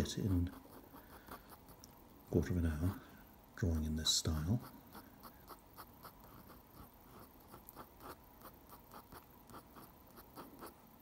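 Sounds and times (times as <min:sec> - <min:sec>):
pen scratching on paper: 0:03.7 - 0:10.8.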